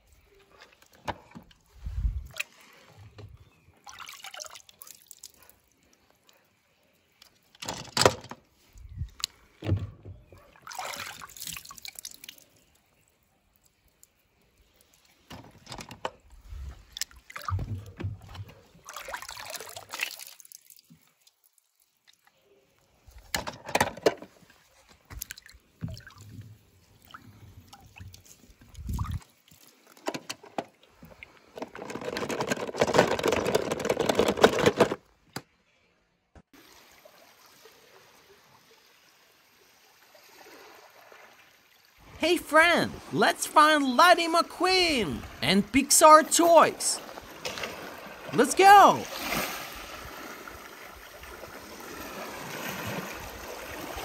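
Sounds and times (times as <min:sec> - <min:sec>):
water splashing in plastic tub: 0:03.8 - 0:05.4, 0:10.5 - 0:12.5, 0:16.9 - 0:21.3, 0:25.1 - 0:30.0.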